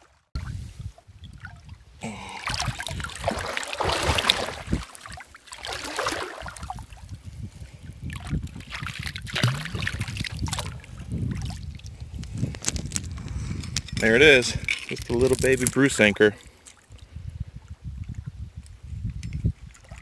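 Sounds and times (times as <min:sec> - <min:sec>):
water splashing and streaming: 0:00.0 - 0:07.2, 0:08.0 - 0:11.9, 0:19.6 - 0:20.0
anchor splashing out of water: 0:02.3 - 0:06.9, 0:08.7 - 0:10.8.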